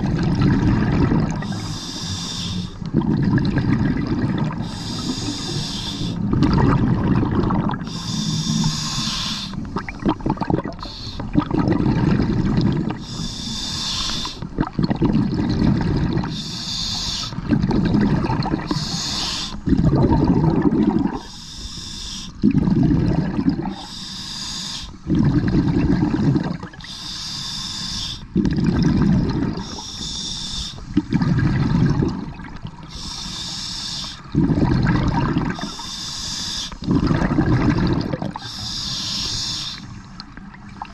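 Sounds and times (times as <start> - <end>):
exhaled bubbles rumbling underwater: 0.0 - 40.9
scuba regulator inhale hiss: 1.4 - 2.8, 4.6 - 6.3, 7.8 - 9.7, 10.8 - 11.3, 13.0 - 14.4, 16.2 - 17.4, 18.6 - 19.6, 21.2 - 22.4, 23.7 - 25.0, 26.8 - 28.3, 29.6 - 31.0, 32.9 - 34.3, 35.7 - 36.9, 38.4 - 40.2.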